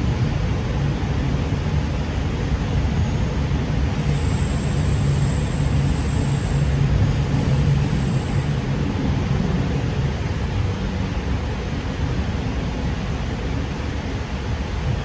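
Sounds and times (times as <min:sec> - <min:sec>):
train cabin low rumble: 0:00.0 - 0:15.0
faint high whine: 0:02.0 - 0:10.5.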